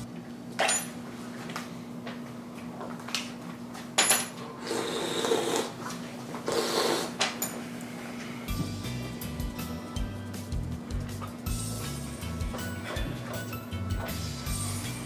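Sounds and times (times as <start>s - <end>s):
steady low hum: 0.0s - 15.0s
person spitting and slurping: 4.6s - 7.2s.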